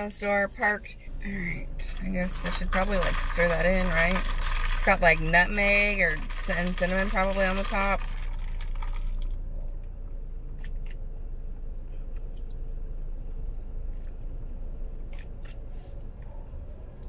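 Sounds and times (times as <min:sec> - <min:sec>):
low rumble in car cabin: 0:00.0 - 0:17.0
straw and ice in plastic cup: 0:01.8 - 0:09.5.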